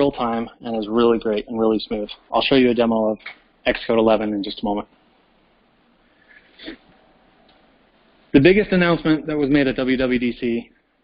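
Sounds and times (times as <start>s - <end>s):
soft breath: 6.0s - 7.2s.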